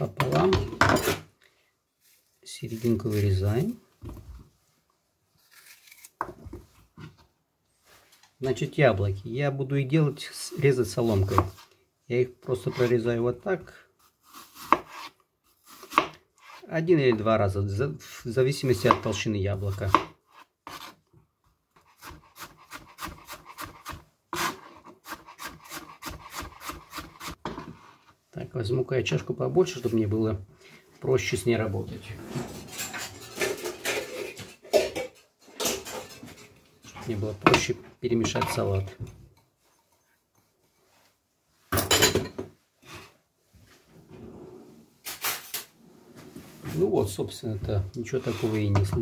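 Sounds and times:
salad slices rustling: 5.4s - 6.2s
knife cutting apple on board: 14.0s - 17.2s, 18.7s - 21.0s, 21.8s - 27.7s.

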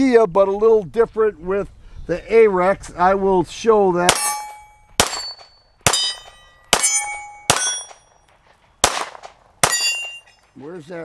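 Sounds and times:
pistol shots: 4.1s - 8.1s, 8.8s - 10.3s
steel targets clanging: 4.1s - 8.2s, 9.6s - 10.6s.

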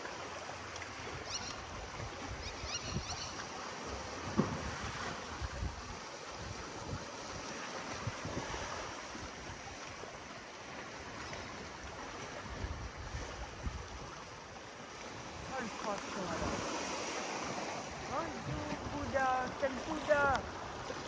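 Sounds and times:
waves washing on rocky shore: 3.4s - 21.0s
wind buffeting microphone: 4.3s - 9.7s, 15.3s - 21.0s.

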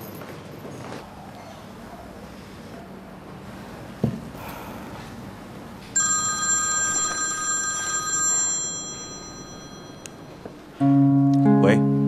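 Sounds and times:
mobile phone ringtone: 6.0s - 10.6s.

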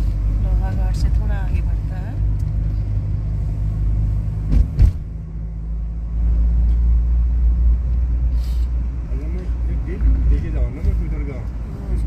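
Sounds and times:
car engine and road rumble: 0.0s - 12.0s
sharp knocks: 4.5s - 5.1s.

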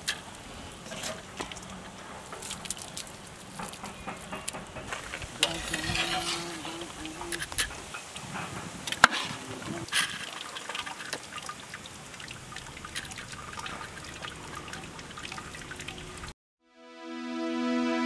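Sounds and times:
ladle ticks and taps: 1.4s - 5.0s, 10.7s - 16.3s.

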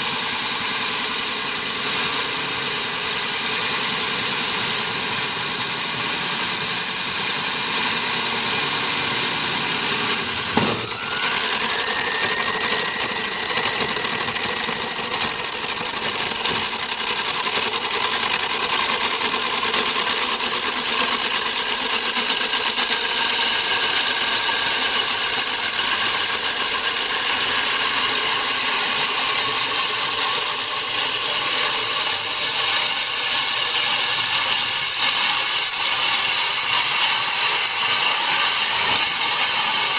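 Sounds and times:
core drill motor whine: 0.0s - 39.9s
brief knock: 10.5s - 11.0s.

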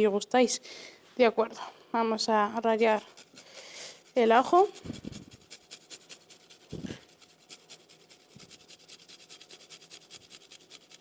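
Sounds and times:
garlic rasping on metal grater: 2.5s - 11.0s.

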